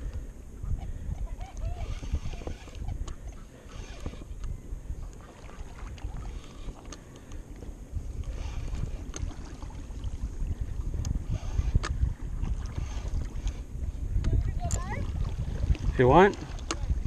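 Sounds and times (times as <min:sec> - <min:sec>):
wind buffeting microphone: 0:00.0 - 0:17.0
faint clicks: 0:06.0 - 0:09.3.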